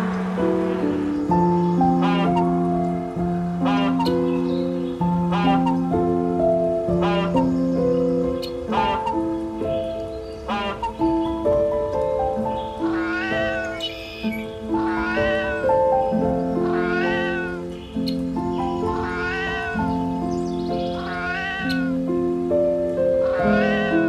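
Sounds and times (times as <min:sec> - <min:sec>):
background music with held notes: 0:00.0 - 0:24.0
animal's drawn-out call: 0:07.0 - 0:07.4, 0:08.7 - 0:09.2, 0:10.5 - 0:11.0, 0:12.9 - 0:15.7, 0:16.6 - 0:17.6, 0:18.8 - 0:19.9, 0:21.0 - 0:22.0, 0:23.2 - 0:24.0.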